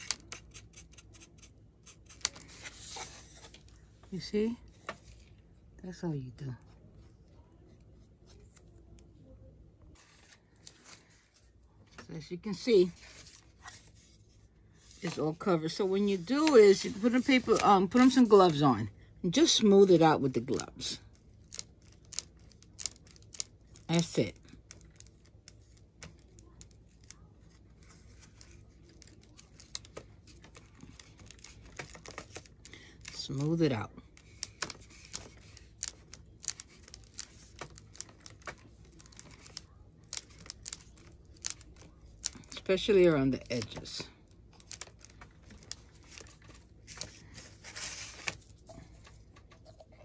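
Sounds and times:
paper crinkling: 20.4 - 49.8.

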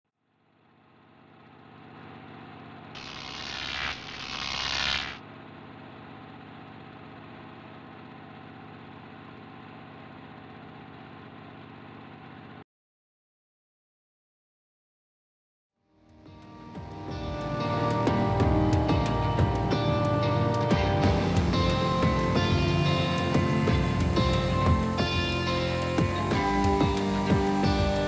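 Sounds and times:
buzzing hum: 3.0 - 5.2.

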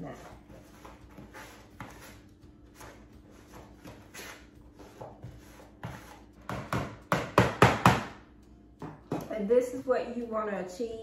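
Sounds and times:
utensil scraping in plastic bowl: 0.0 - 6.3.

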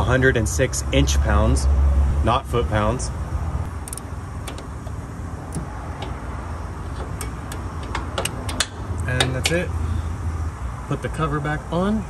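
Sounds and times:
ratchet clicking: 3.7 - 9.7.

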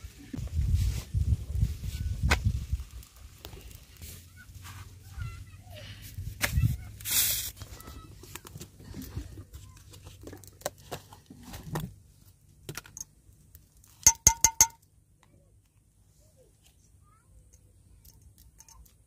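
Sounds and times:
metal spoon clinking on metal: 14.1 - 14.8.

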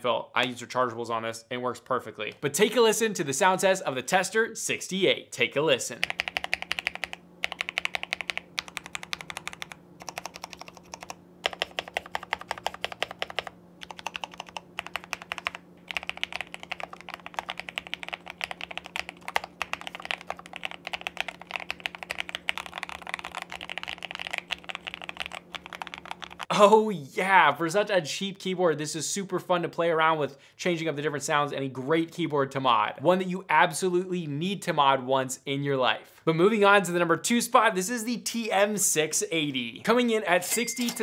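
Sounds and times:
fast mechanical keyboard typing: 5.9 - 26.5.

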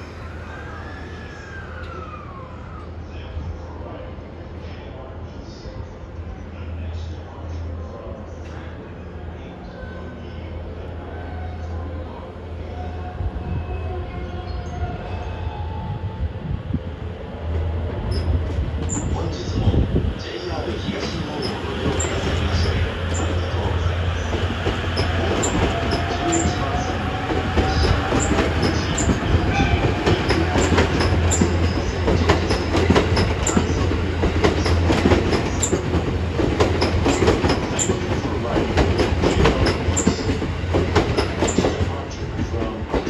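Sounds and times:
train rumble: 0.0 - 43.0
train wheels clicking over rail joints: 27.4 - 41.9.

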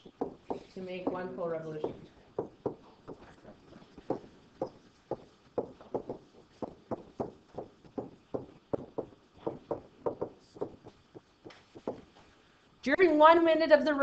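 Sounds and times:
stylus tapping on touchscreen: 4.1 - 12.2.

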